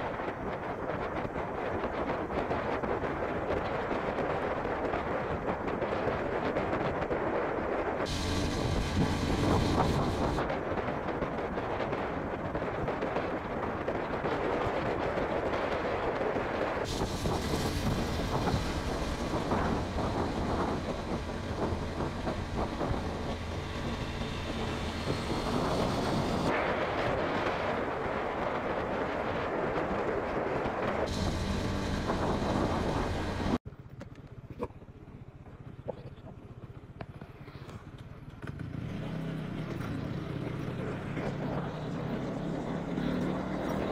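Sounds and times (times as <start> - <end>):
motorcycle engine hum: 0.0 - 43.9
wind and road rush: 0.0 - 43.9.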